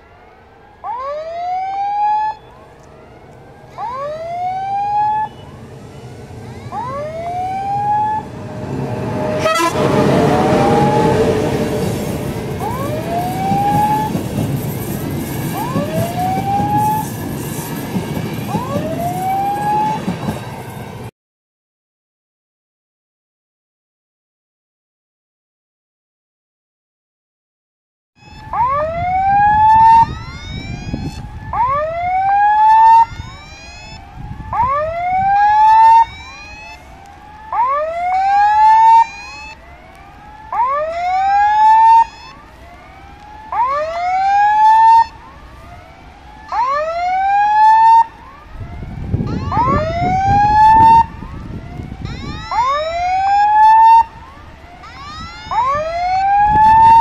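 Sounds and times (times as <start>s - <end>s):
level crossing warning alarm: 0.0s - 21.0s, 28.2s - 57.0s
low rumbling noise: 2.6s - 14.4s.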